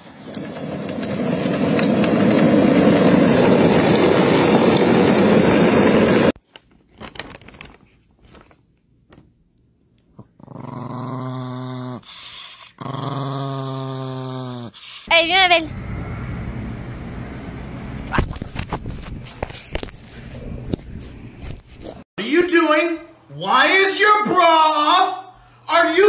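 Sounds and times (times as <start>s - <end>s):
toy cars rushing along road: 0.0s - 6.3s
dog growling: 10.1s - 15.1s.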